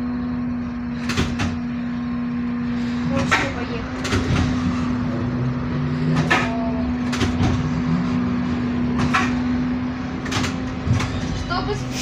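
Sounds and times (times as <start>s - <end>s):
sharp clicks and knocks: 10.2s - 11.2s.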